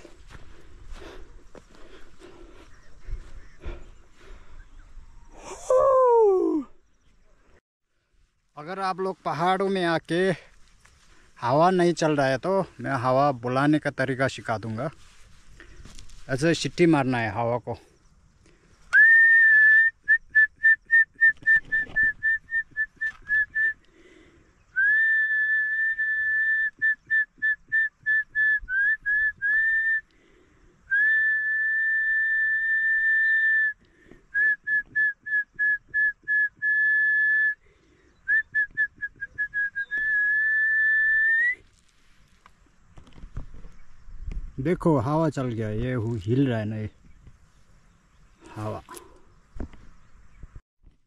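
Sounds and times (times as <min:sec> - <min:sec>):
man whistling: 0:18.9 - 0:23.8, 0:24.7 - 0:30.1, 0:30.9 - 0:37.6, 0:38.2 - 0:41.6.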